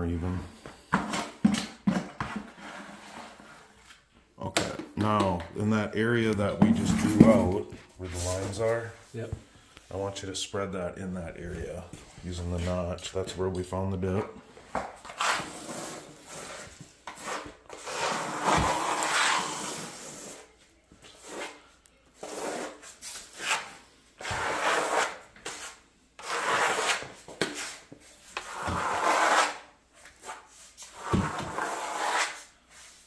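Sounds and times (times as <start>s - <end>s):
trowel scraping cement compound: 1.0s - 3.8s, 15.0s - 20.5s, 22.2s - 32.6s.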